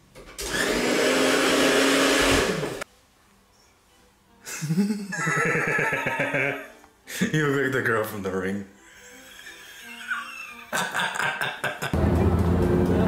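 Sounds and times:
hair dryer humming: 0:00.4 - 0:02.8.

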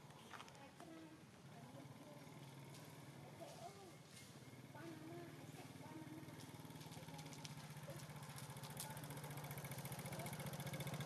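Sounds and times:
engine running with fast pulsing beat: 0:06.3 - 0:11.0.

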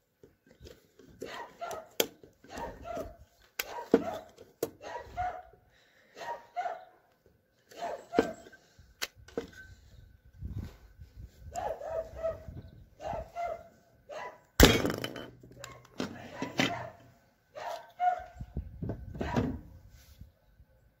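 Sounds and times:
rivet gun crunching clicks: 0:09.0 - 0:09.3.

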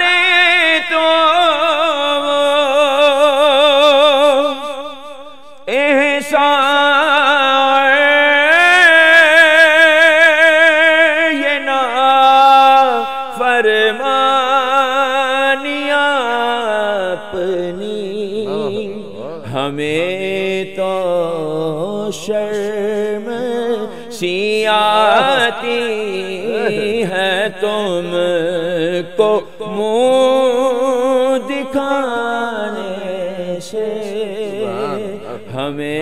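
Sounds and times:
man singing solo: 0:18.4 - 0:19.7, 0:23.9 - 0:28.7, 0:34.4 - 0:36.0.

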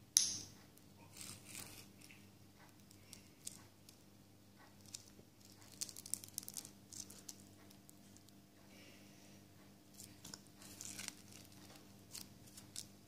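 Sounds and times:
faint crackles and small clicks: 0:00.8 - 0:08.4.

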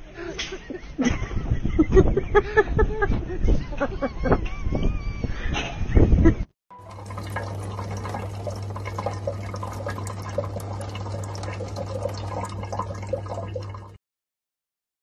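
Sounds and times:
faucet water trickling into sink: 0:06.7 - 0:14.0.

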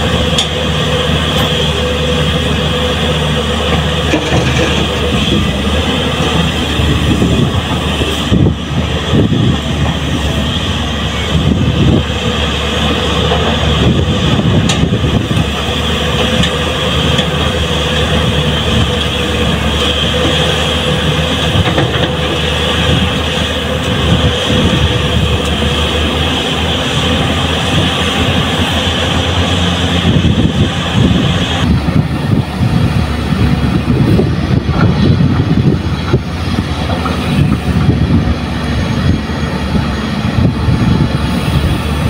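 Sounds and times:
excavator diesel engine: 0:00.0 - 0:42.0
hydraulic whine: 0:00.0 - 0:42.0.

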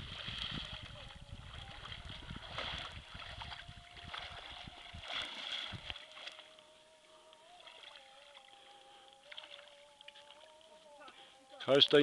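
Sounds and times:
wind buffeting microphone: 0:00.0 - 0:06.0
water splashing and sloshing: 0:00.0 - 0:06.6, 0:07.5 - 0:10.7
faint steady hum: 0:00.0 - 0:12.0.

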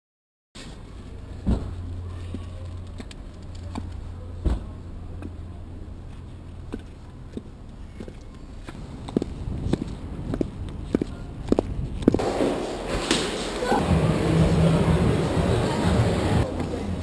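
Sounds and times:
steady low rumble: 0:08.5 - 0:17.0.

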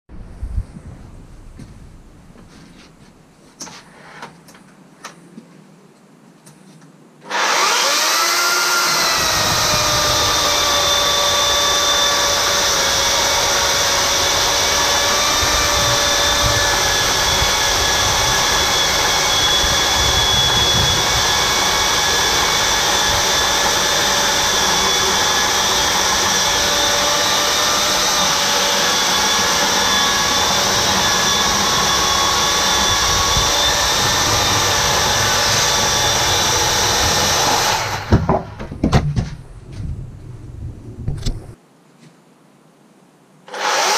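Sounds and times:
electric chainsaw cutting log: 0:07.2 - 0:38.6, 0:43.5 - 0:43.9.

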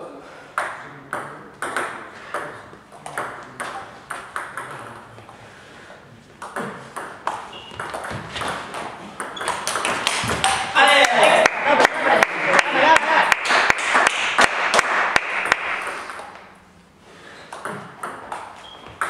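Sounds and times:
table tennis rally: 0:00.0 - 0:19.0
table tennis ball bouncing: 0:00.6 - 0:05.2, 0:06.4 - 0:11.4, 0:13.7 - 0:16.5, 0:17.5 - 0:19.0.

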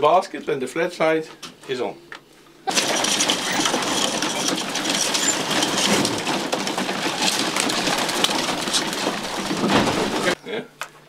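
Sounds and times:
beaks pecking grain: 0:02.7 - 0:10.4
pigeon wings flapping: 0:02.7 - 0:10.4.

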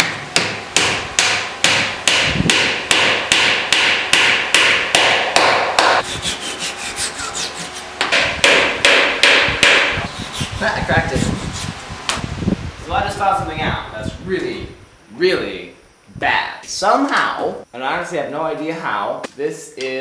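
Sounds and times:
mallet striking wooden dowel: 0:00.0 - 0:06.0, 0:08.0 - 0:10.0.

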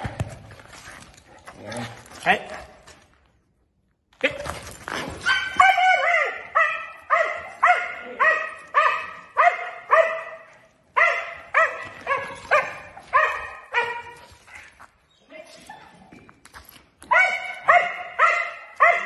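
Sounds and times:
dog barking: 0:05.2 - 0:14.3, 0:17.1 - 0:19.0.

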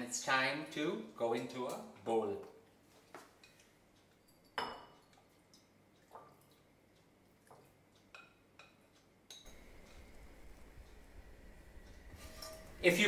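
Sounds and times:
low steady background noise: 0:00.0 - 0:13.0
utensil clinking glass bowl: 0:04.2 - 0:05.3.

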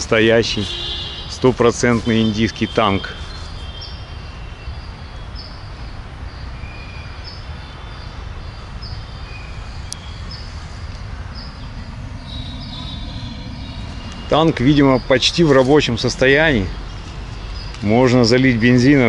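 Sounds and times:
small birds chirping: 0:00.1 - 0:19.0
steady low rumble: 0:08.6 - 0:19.0.

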